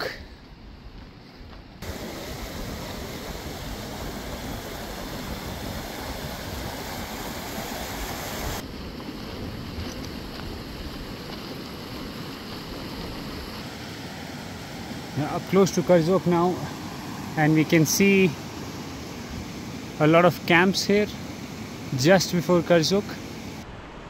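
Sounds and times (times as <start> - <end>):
wind buffeting microphone: 1.8 - 13.6.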